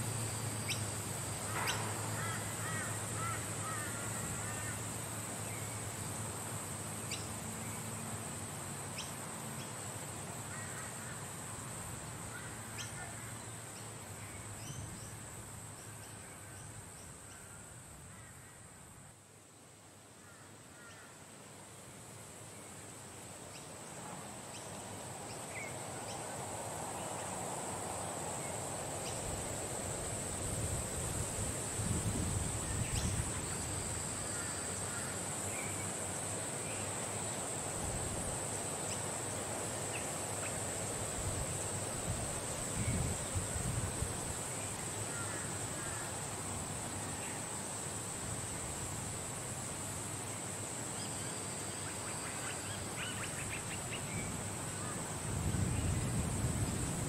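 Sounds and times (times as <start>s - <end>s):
constant hiss: 0.0s - 57.0s
wind buffeting microphone: 42.1s - 44.3s, 55.2s - 57.0s.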